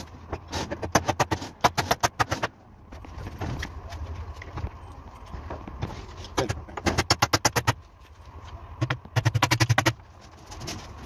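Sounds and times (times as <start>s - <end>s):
hammer driving nails into wood: 0.5s - 2.5s.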